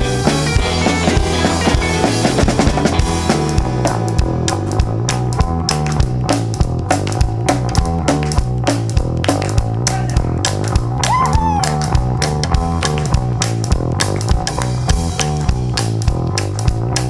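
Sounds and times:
drum kit: 0.0 - 17.0
electric guitar: 0.0 - 17.0
walking bass line: 0.0 - 17.0
hand claps: 5.0 - 17.0.

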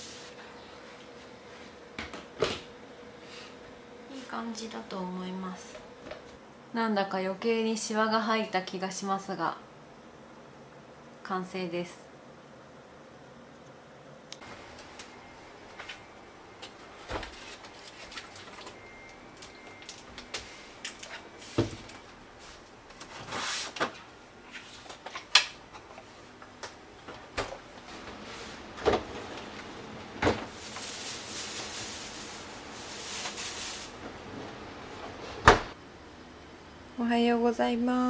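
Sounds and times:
refrigerator door opening and shutting: 27.1 - 30.8, 34.0 - 35.8
sliding hiss: 30.5 - 34.0.

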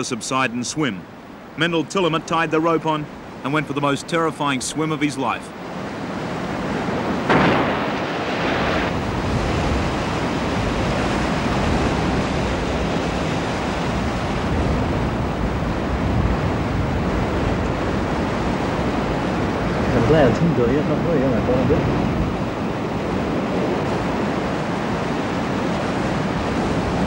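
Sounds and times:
ocean surf breaking against rocks: 0.0 - 27.0
wind on microphone: 5.7 - 27.0
wave crash: 5.8 - 27.0.

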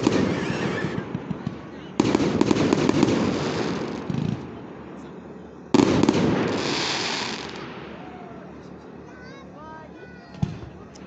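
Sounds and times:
firework shells bursting: 0.0 - 4.5, 5.7 - 8.0
firework crackle: 0.0 - 4.6, 5.7 - 8.4.

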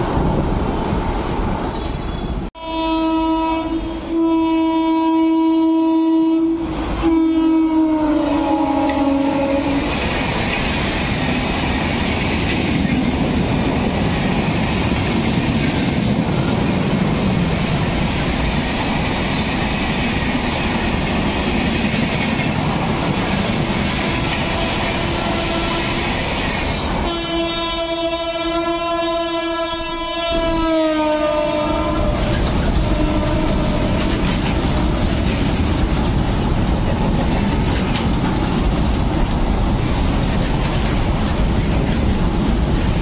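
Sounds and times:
train rushing past: 0.0 - 43.0
locomotive horn blast: 2.6 - 9.9, 24.2 - 26.1, 27.0 - 35.1
wheel clatter on rails: 32.1 - 43.0.

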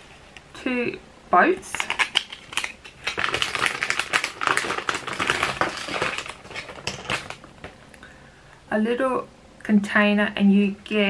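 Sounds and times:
plastic pieces clicking and rattling: 1.6 - 7.5.

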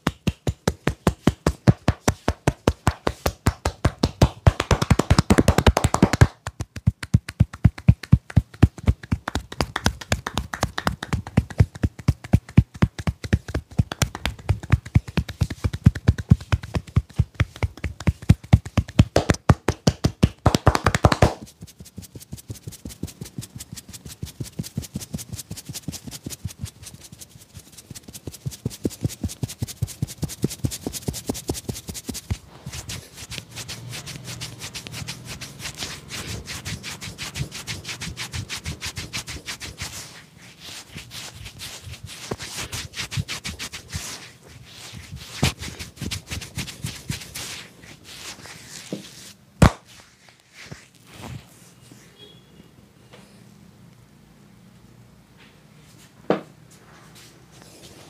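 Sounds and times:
hands drumming on head: 0.0 - 26.7
fingers rubbing wet hair: 0.1 - 51.7.

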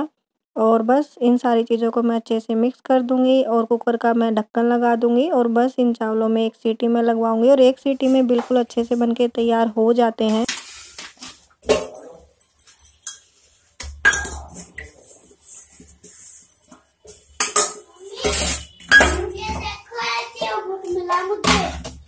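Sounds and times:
steel dishes clattering in sink: 11.2 - 19.7.

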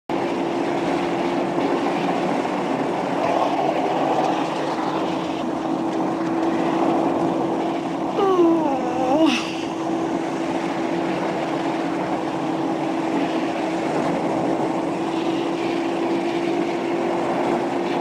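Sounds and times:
car engine drone: 0.1 - 18.0
wind and road noise: 0.1 - 18.0
falling vocal sigh: 8.2 - 9.8.

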